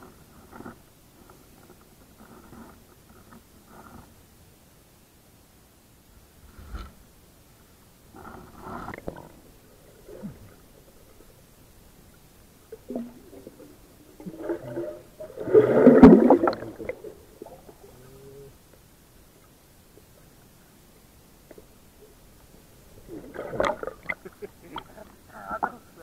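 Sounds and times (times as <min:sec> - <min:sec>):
underwater gurgling and bubbling: 0:12.7 - 0:18.0, 0:23.0 - 0:24.2.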